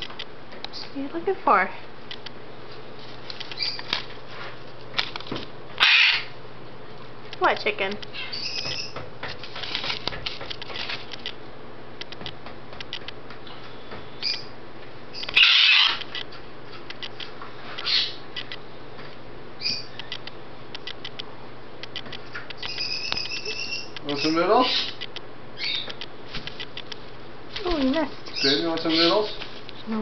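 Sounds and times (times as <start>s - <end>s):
cockatoo high-pitched calls: 3.6s - 3.9s, 5.8s - 6.4s, 8.1s - 9.0s, 14.2s - 14.5s, 15.1s - 16.1s, 17.8s - 18.2s, 22.6s - 25.0s, 25.6s - 26.0s, 28.2s - 29.4s.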